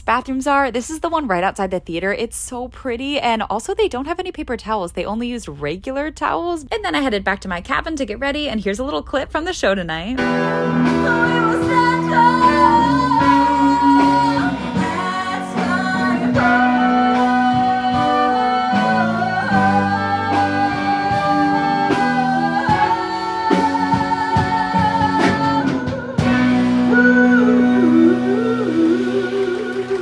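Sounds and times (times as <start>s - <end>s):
small live band: 10.2s - 30.0s
woman singing: 10.8s - 30.0s.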